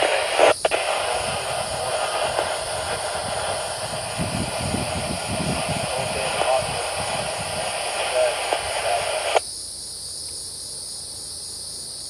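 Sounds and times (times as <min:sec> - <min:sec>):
hiss: 0:00.0 - 0:09.4.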